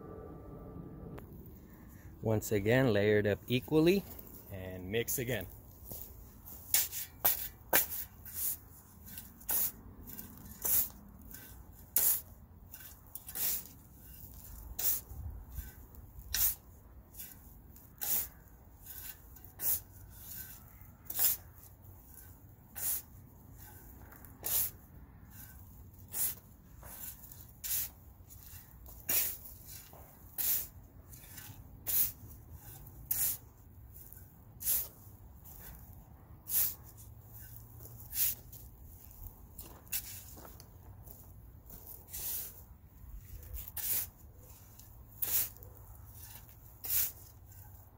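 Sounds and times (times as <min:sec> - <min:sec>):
shovel scraping soil: 0:02.7 - 0:47.9.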